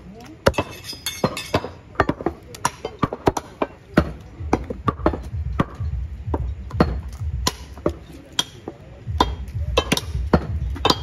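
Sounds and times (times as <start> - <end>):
low rumble: 4.4 - 8.0, 9.0 - 11.0.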